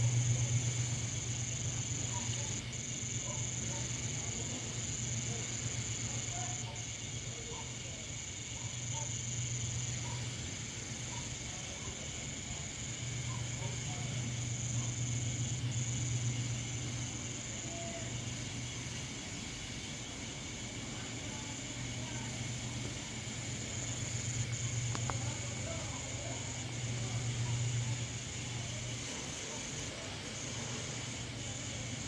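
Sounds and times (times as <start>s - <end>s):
crickets trilling: 0.0s - 32.0s.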